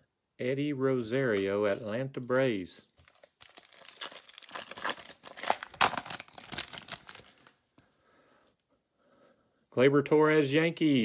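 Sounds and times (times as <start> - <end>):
foil wrapper tearing and crinkling: 3.1 - 7.6.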